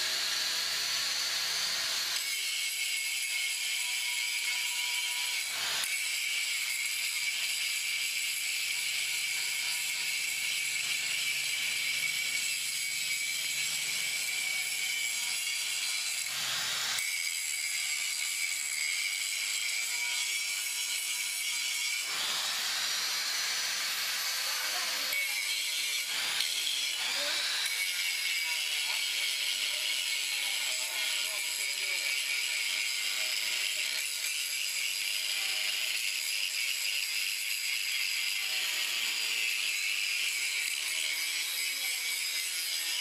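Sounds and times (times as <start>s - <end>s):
angle grinder whine: 0.0s - 5.9s, 9.1s - 33.8s.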